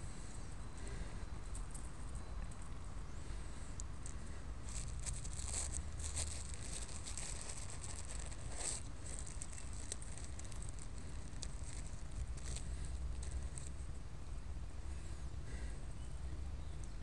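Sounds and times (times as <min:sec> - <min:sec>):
steady low rumble: 0:00.0 - 0:17.0
close rustling and crackling: 0:03.8 - 0:14.0.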